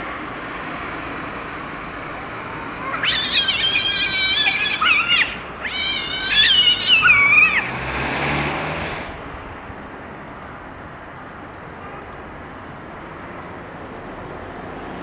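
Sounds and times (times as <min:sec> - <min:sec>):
cats yowling and screaming: 0:02.5 - 0:07.7
cats fighting burst: 0:03.0 - 0:07.7.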